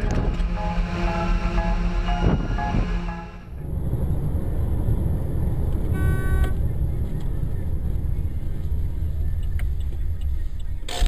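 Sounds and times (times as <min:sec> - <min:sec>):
car horn: 0:00.0 - 0:03.6, 0:05.9 - 0:06.6
car road and engine rumble: 0:00.0 - 0:11.0.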